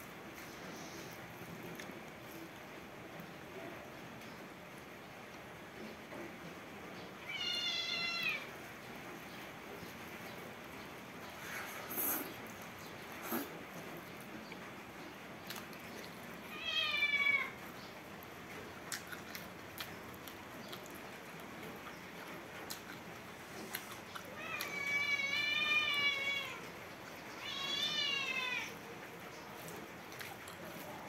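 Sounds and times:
cat meowing: 7.2s - 8.5s, 16.5s - 17.6s, 24.4s - 26.7s, 27.3s - 28.8s
faint eating clicks: 11.9s - 16.4s, 17.4s - 27.2s, 29.3s - 31.0s.

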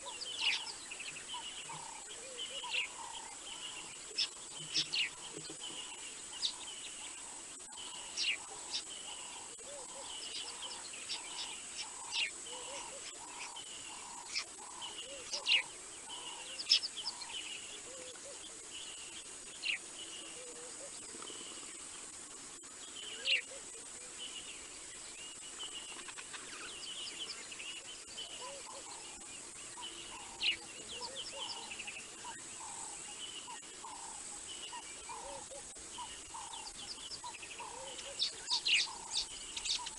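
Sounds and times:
birds whistling and chirping: 0.0s - 6.8s, 22.9s - 23.6s, 25.2s - 39.9s.

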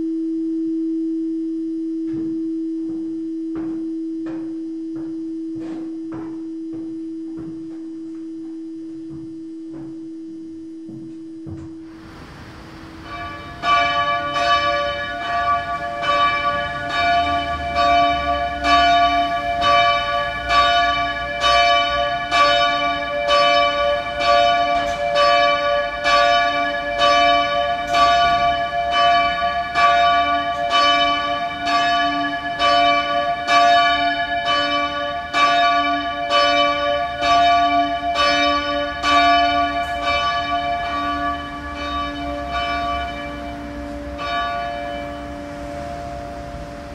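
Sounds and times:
church bell ringing: 12.8s - 46.9s.

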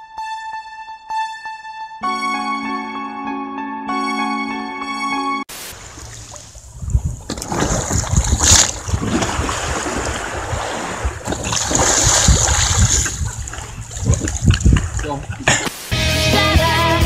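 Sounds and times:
sharp water splash: 5.5s - 15.9s
rush of water: 5.5s - 16.0s
wind rumbling on microphone: 5.8s - 15.6s.

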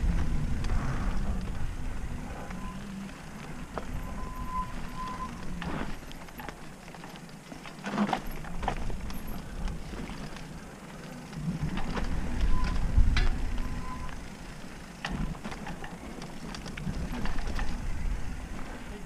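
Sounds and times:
wind buffeting microphone: 0.0s - 6.0s, 11.4s - 14.2s, 15.0s - 19.0s
high whine: 0.0s - 6.6s
bike knocking and rattling: 0.0s - 19.0s
bike tyres rumbling on dirt: 0.0s - 19.0s.

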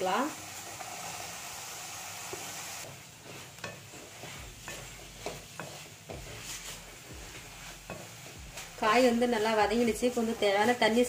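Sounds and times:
soft sizzle: 0.0s - 11.0s
wooden spatula scraping metal pan: 2.3s - 11.0s.

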